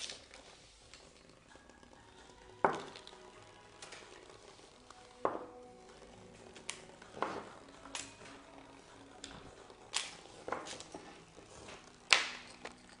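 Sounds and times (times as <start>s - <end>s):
small hard objects clicking: 0.0s - 5.4s, 11.9s - 13.0s.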